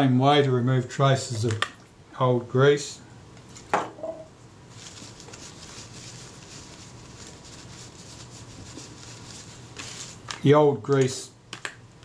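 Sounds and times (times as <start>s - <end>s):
tissue paper rustling and rubbing: 4.7s - 10.4s.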